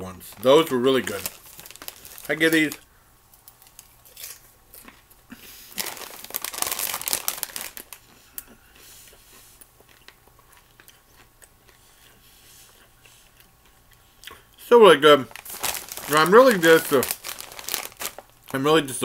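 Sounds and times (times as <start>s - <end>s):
popcorn bag crinkling: 0.1s - 2.8s, 3.4s - 5.0s, 5.7s - 8.1s, 15.0s - 19.0s
popcorn being chewed: 0.2s - 14.6s, 15.2s - 18.6s.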